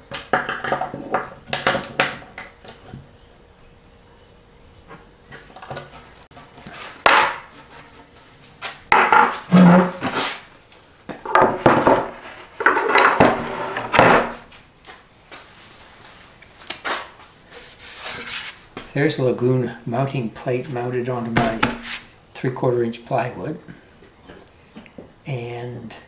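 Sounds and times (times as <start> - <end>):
wood scraping and knocking on wood: 4.9 - 10.5, 11.1 - 14.6, 21.3 - 22.1.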